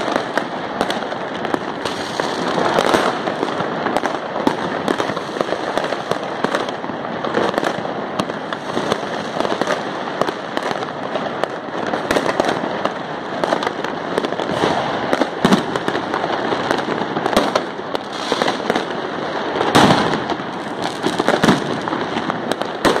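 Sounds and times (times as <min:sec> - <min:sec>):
fireworks crackling and banging: 0:00.0 - 0:23.0.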